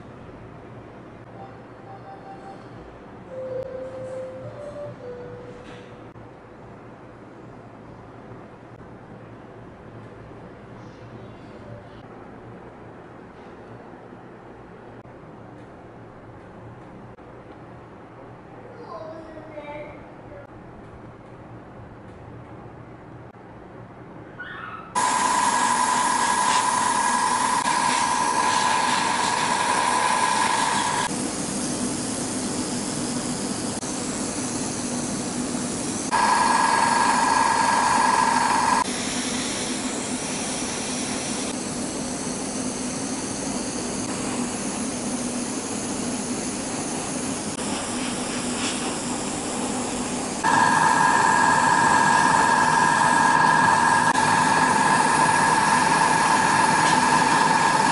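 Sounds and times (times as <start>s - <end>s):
airbrush air hiss: 25.0s - 57.9s
high-pitched whine: 25.0s - 57.9s.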